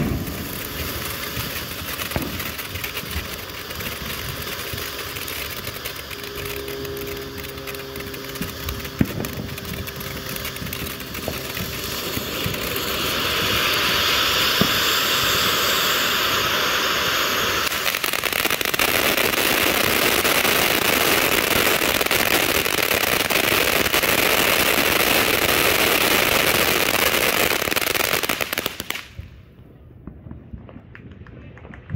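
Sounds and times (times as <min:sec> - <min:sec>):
firework fountain hissing sparks: 0:00.0 - 0:29.4
firework crackles and pops: 0:00.0 - 0:31.9.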